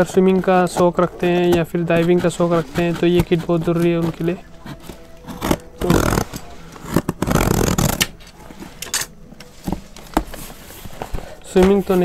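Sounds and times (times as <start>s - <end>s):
packing tape tearing: 4.0s - 8.4s.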